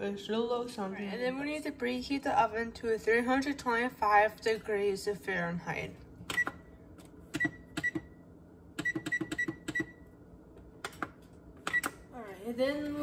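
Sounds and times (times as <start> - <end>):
oven control panel beeps: 6.3 - 6.7, 7.4 - 8.2, 8.8 - 10.0, 11.7 - 12.0.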